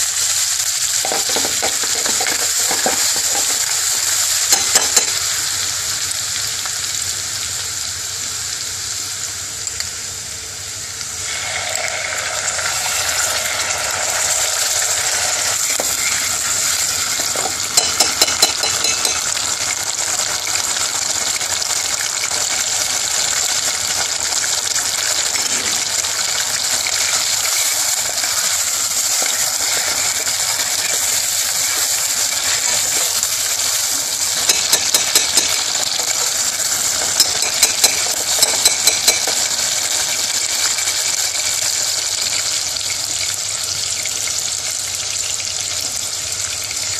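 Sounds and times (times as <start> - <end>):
spices sizzling in hot oil: 0.0 - 46.9
metal spoon clicking against pan: 4.5 - 5.2, 17.8 - 19.3, 34.4 - 36.4, 37.0 - 39.5.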